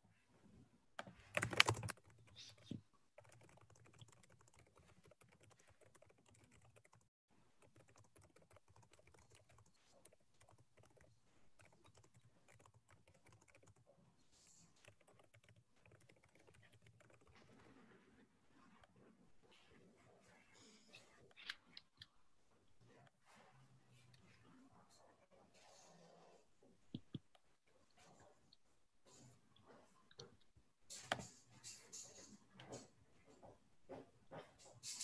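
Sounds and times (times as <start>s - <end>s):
computer keyboard typing: 1.0s - 17.4s.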